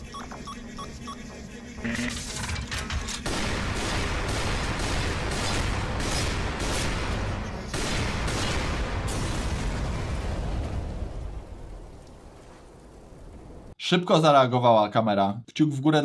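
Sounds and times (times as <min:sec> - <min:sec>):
rapid gunfire: 0:03.0 - 0:09.8
explosions: 0:03.2 - 0:13.4.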